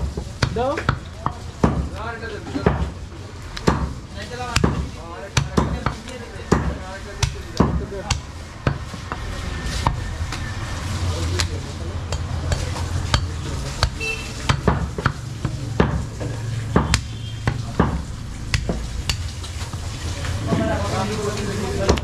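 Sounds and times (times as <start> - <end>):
cleaver chopping on wooden block: 3.6 - 9.2, 12.1 - 19.3.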